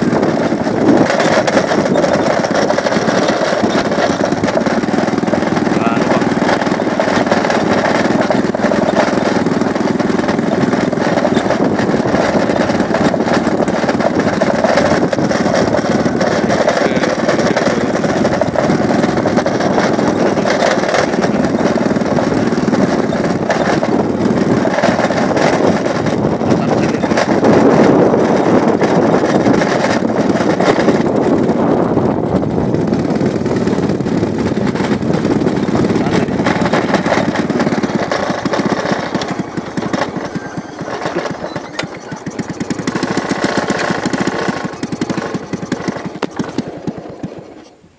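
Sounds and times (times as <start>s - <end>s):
wind rushing: 0.0s - 41.6s
motorcycle engine running: 0.0s - 47.9s.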